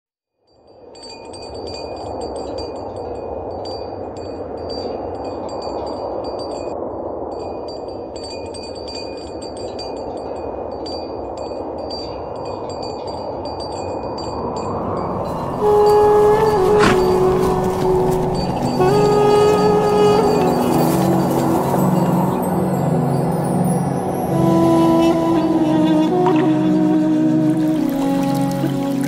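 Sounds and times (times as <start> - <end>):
small metal chimes tinkling: 0.4 - 25.1
wind rushing: 10.4 - 29.0.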